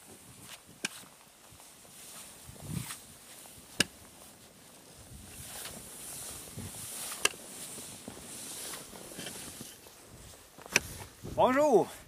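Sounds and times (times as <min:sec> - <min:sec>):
footsteps crunching in snow: 0:00.0 - 0:12.0
sled hissing over snow: 0:04.3 - 0:10.1.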